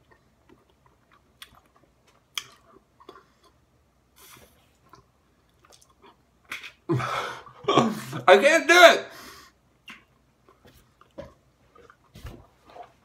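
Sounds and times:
mouth chewing bubble gum: 0:00.0 - 0:06.9, 0:09.8 - 0:12.2.

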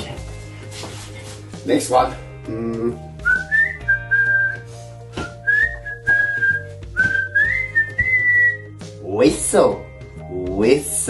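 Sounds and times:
light background music: 0:00.0 - 0:11.0
man whistling a tune: 0:03.2 - 0:08.7.

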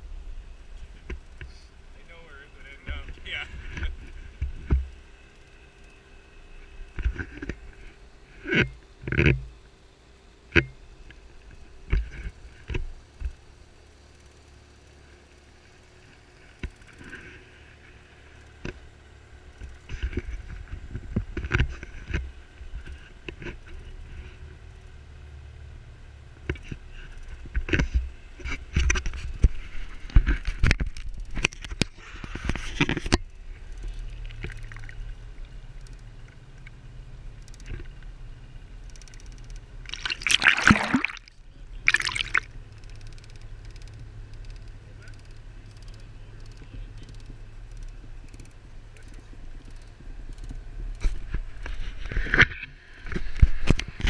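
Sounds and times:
boat motor rumble: 0:31.8 - 0:54.0.

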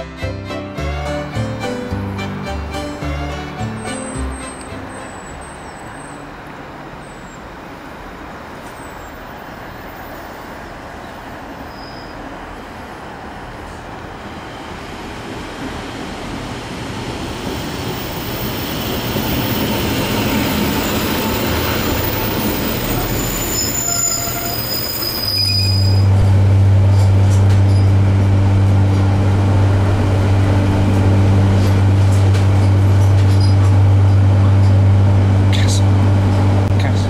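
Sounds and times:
train pulling in: 0:00.0 - 0:37.0
brakes squealing: 0:03.6 - 0:07.6, 0:18.1 - 0:37.0
diesel engine drone: 0:25.6 - 0:37.0.

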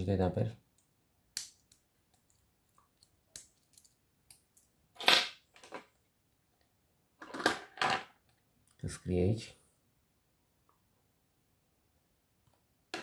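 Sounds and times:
small parts clattering on table: 0:07.2 - 0:08.2.

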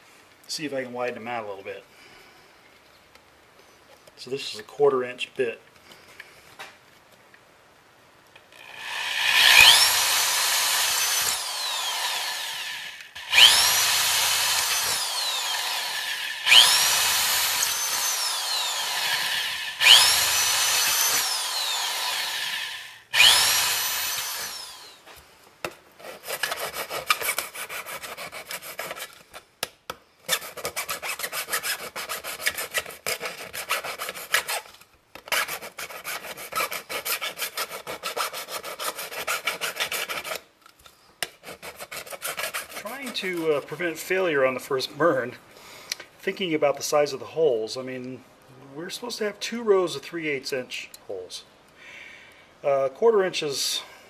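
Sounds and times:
electric drill whining: 0:08.6 - 0:25.1
fast rough scraping: 0:41.5 - 0:44.0.

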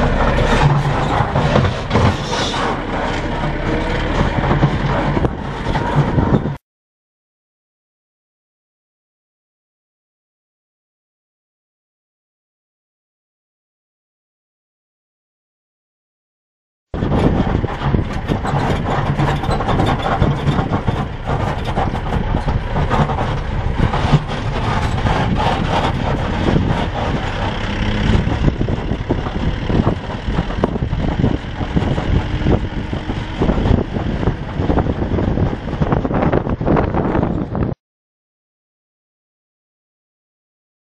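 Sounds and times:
vehicle engine running: 0:00.0 - 0:06.6, 0:17.0 - 0:37.8.

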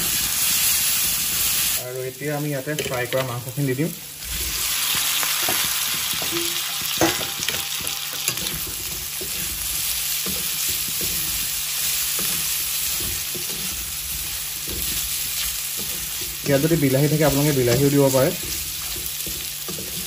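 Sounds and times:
meat sizzling in oil: 0:00.0 - 0:20.0
spatula scraping a pan: 0:04.2 - 0:20.0.

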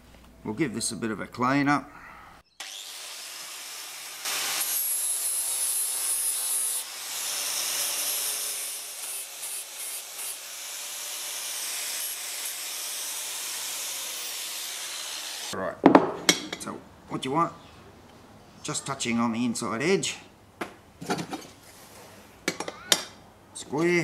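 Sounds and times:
angle grinder grinding steel: 0:02.6 - 0:15.6.

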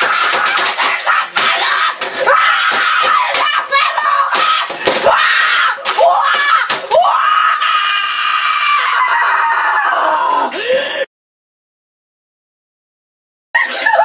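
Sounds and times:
boy screaming: 0:00.0 - 0:10.6.

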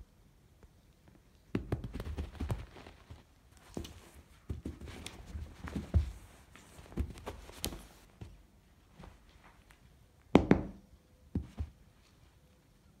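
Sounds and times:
soft knocks and thumps: 0:03.7 - 0:08.4.

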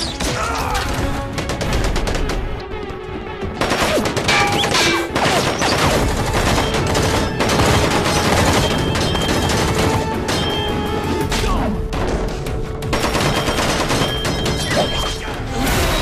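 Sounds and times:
dramatic action music: 0:00.0 - 0:16.0
gunfire bursts: 0:03.6 - 0:10.7, 0:12.8 - 0:14.9.

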